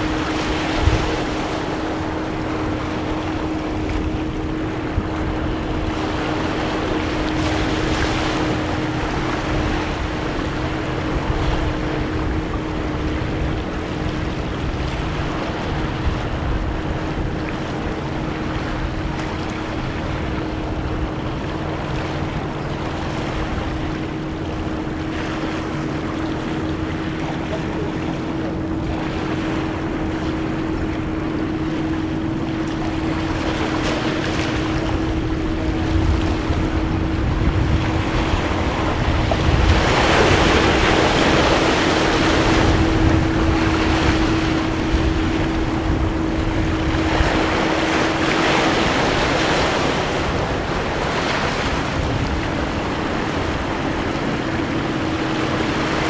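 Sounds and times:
wind rumbling on microphone: 0:00.0 - 0:56.0
waves washing over rocks: 0:31.2 - 0:56.0.

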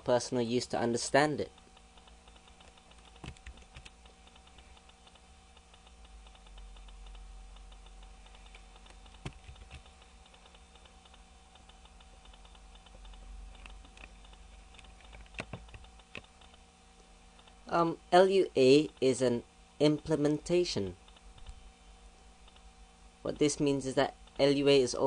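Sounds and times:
faint electrical hum: 0:00.0 - 0:25.0
keyboard keys clicking: 0:01.6 - 0:16.6.

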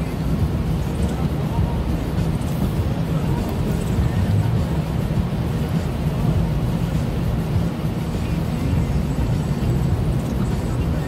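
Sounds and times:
engine and tyre rumble: 0:00.0 - 0:11.0
hiss of wet pavement: 0:00.0 - 0:11.0.

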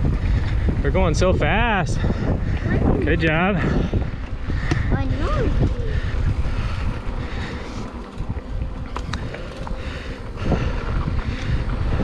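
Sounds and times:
wind buffeting microphone: 0:00.0 - 0:12.0
bike clicks: 0:03.9 - 0:05.0, 0:05.6 - 0:12.0.

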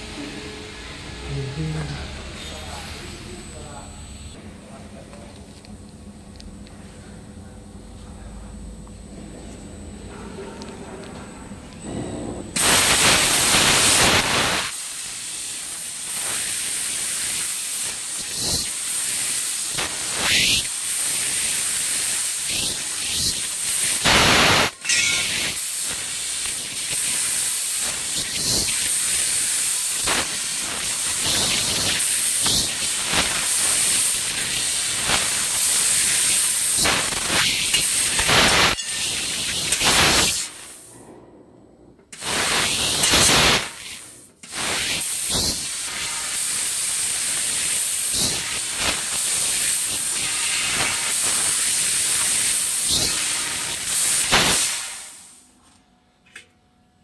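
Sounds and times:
thin high whine: 0:00.0 - 0:05.1, 0:24.0 - 0:25.6, 0:31.0 - 0:41.2
laser cutting head hissing: 0:12.6 - 0:40.9, 0:42.2 - 0:55.4.

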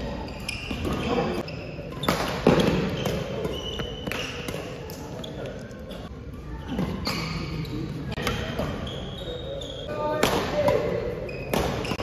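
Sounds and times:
sneakers squeaking on floor: 0:00.0 - 0:12.0
rackets hitting shuttlecock: 0:01.9 - 0:05.2, 0:10.1 - 0:12.0.

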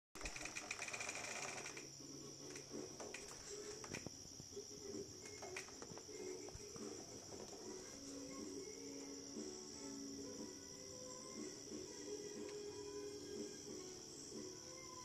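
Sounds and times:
crickets chirring: 0:00.2 - 0:15.0.

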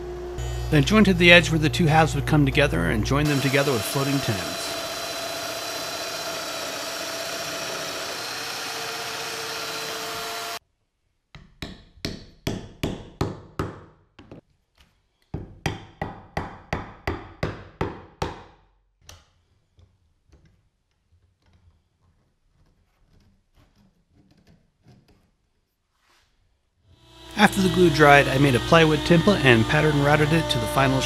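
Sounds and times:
power tool motor whine: 0:00.0 - 0:02.6, 0:03.2 - 0:10.6, 0:27.0 - 0:31.0.

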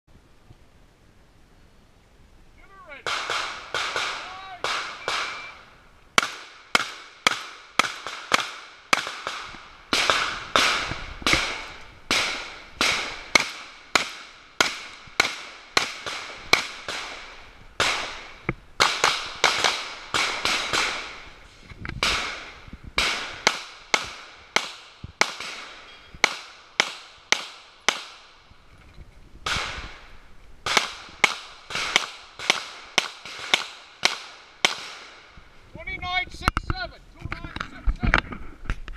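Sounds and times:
pistol shots: 0:03.0 - 0:05.6, 0:06.2 - 0:21.3, 0:22.0 - 0:28.4, 0:29.4 - 0:35.2
shotgun blasts: 0:03.0 - 0:05.6, 0:06.2 - 0:21.4, 0:22.0 - 0:28.4, 0:29.4 - 0:35.3.

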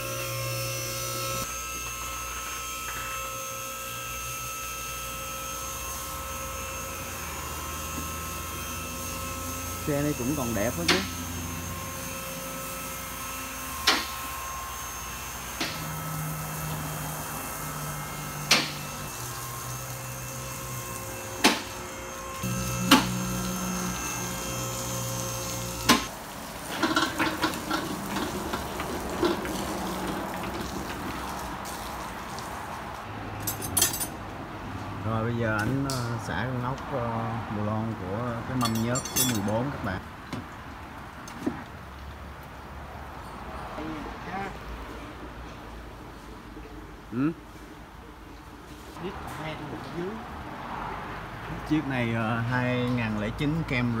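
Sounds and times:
hydraulic pump motor humming: 0:00.0 - 0:26.1.

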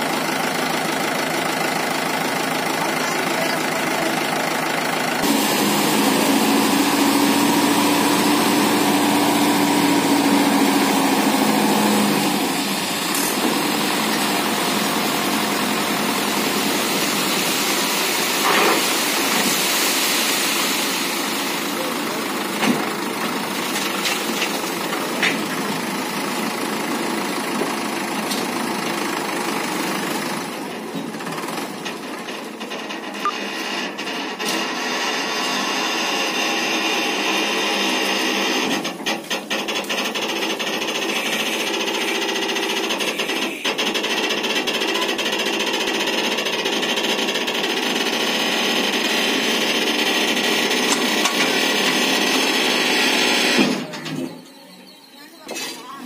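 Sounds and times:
tractor diesel engine running: 0:00.0 - 0:54.3.

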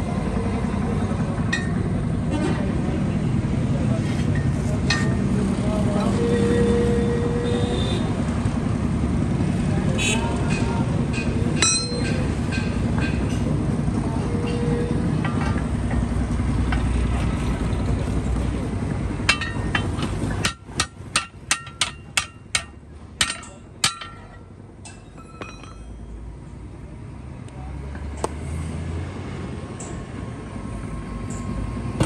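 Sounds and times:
metal bar striking wheel rim: 0:10.4 - 0:13.5, 0:14.3 - 0:16.0, 0:19.2 - 0:26.0.

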